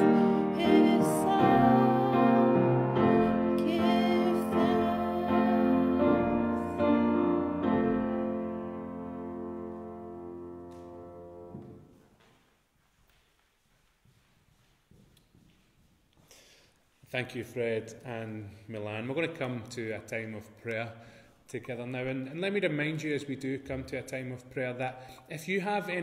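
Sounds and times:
woman singing: 0.0s - 7.8s
piano chord ringing: 0.0s - 11.9s.

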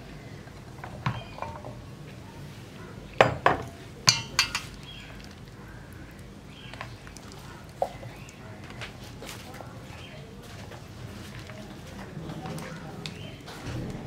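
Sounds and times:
glass bowl knocking on steel bowl: 3.2s - 4.7s.

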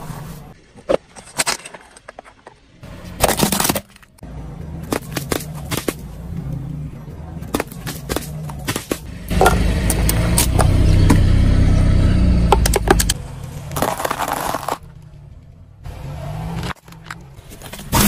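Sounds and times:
car engine and tyre rumble: 1.8s - 18.0s
plastic crackling under tyre: 12.4s - 15.6s.

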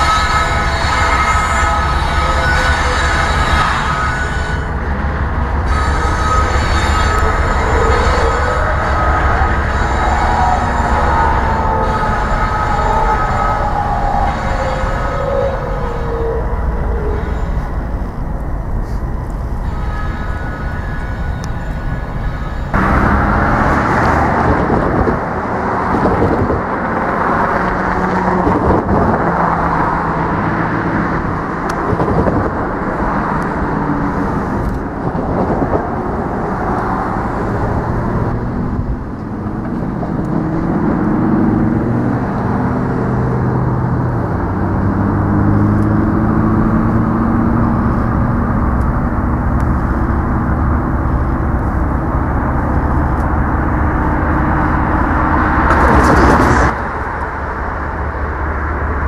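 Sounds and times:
diesel locomotive engine running: 0.0s - 59.0s.

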